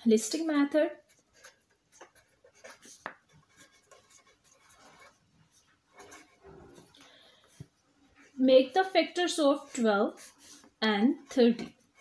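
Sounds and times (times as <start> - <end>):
pen scratching on paper: 1.0 - 7.6, 9.5 - 12.0.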